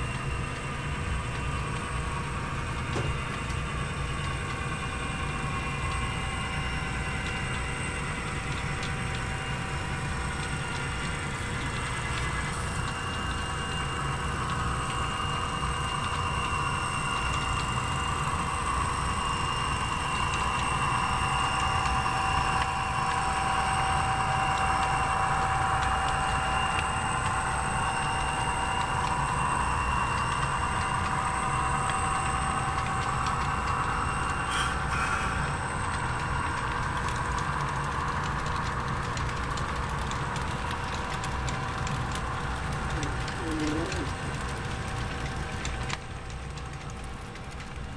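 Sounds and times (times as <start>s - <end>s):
running gear whine: 0.0s - 47.9s
model train wheels rumbling: 32.8s - 47.9s.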